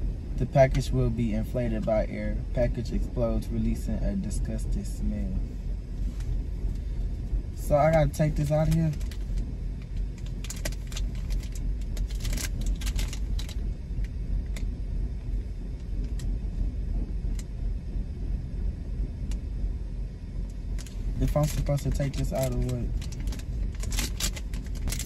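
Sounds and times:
car cabin rumble: 0:00.0 - 0:25.0
plastic and foil crinkling: 0:10.2 - 0:13.6, 0:20.8 - 0:25.0.

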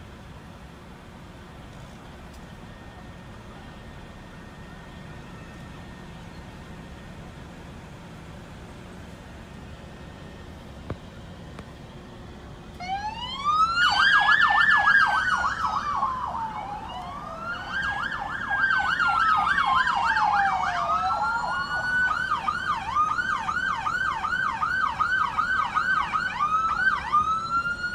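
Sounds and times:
police siren wailing: 0:12.7 - 0:27.9
siren fast warbling yelp: 0:12.8 - 0:23.2.

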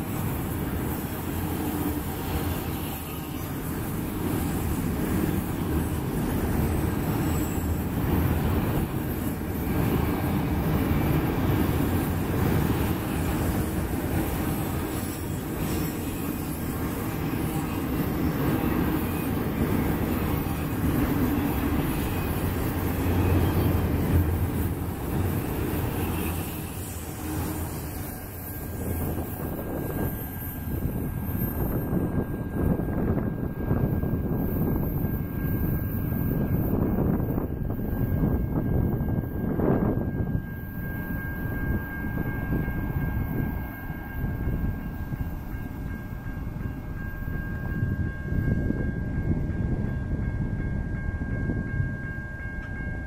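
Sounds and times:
freight train wheels rumbling on rails: 0:00.0 - 0:53.0.

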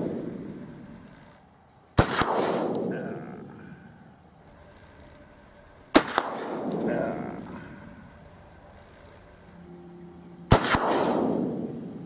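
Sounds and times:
shotgun firing: 0:02.0 - 0:03.3, 0:05.9 - 0:07.6, 0:10.5 - 0:11.9
rolling echo of gunshot: 0:02.0 - 0:03.5, 0:05.9 - 0:07.8, 0:10.5 - 0:11.9.

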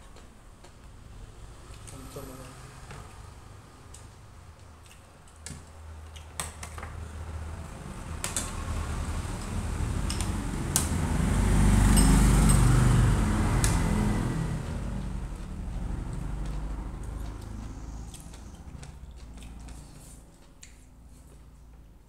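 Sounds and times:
passing vehicle engine rumble: 0:07.0 - 0:20.3.

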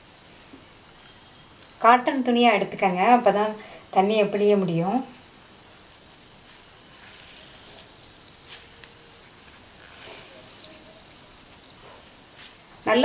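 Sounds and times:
water dripping into bowl: 0:07.4 - 0:08.6, 0:10.2 - 0:12.0.

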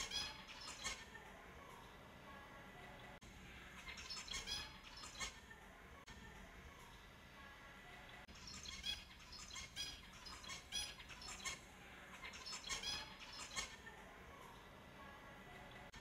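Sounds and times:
finches chirping: 0:00.0 - 0:01.2, 0:03.0 - 0:05.5, 0:07.9 - 0:13.9.

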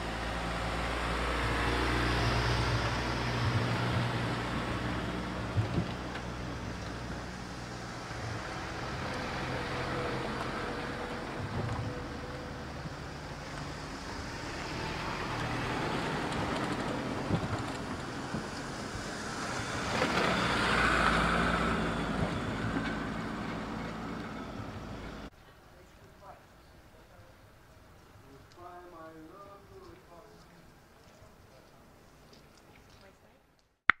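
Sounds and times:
truck engines rumbling past: 0:00.0 - 0:25.3.

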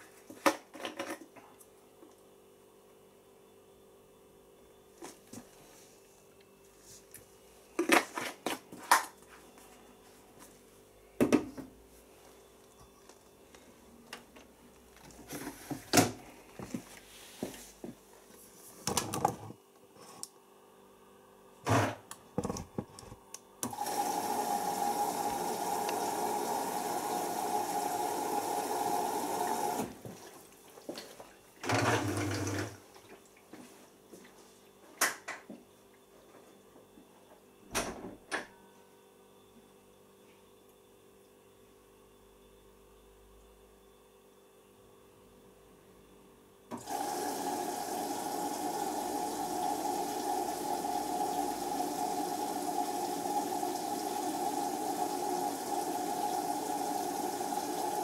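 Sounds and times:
water rushing into washing machine: 0:23.6 - 0:30.5, 0:31.6 - 0:32.8, 0:46.7 - 0:58.0.

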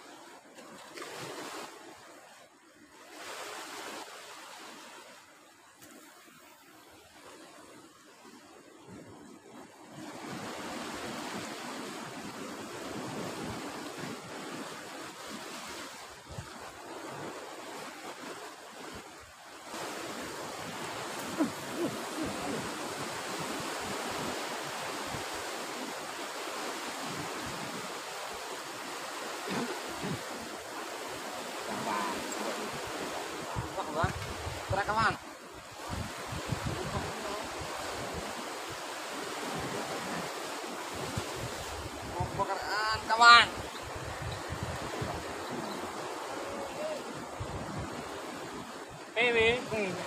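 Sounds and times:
sea surf washing: 0:00.0 - 0:50.0
wind buffeting microphone: 0:35.7 - 0:38.3, 0:43.6 - 0:48.7.

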